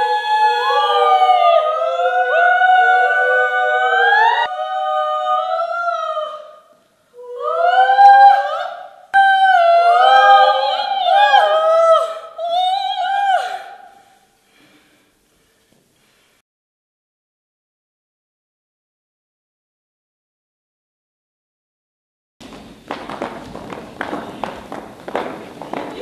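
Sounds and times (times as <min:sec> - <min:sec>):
women singing unaccompanied: 0:00.0 - 0:14.0.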